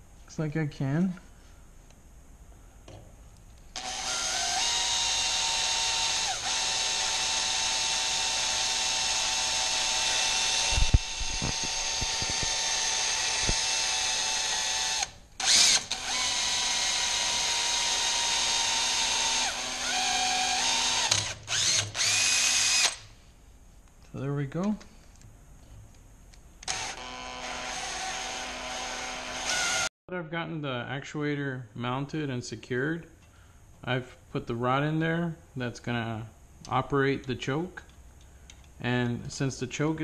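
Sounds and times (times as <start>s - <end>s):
power drill boring into metal: 3.8s - 23.0s, 26.6s - 29.9s.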